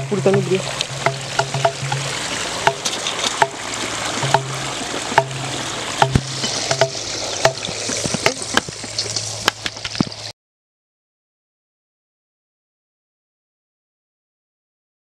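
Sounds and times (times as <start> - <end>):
water sloshing in a steel bowl: 0.0 - 10.3
sharp knocks: 0.3 - 3.6, 4.2 - 5.4, 6.0 - 10.2.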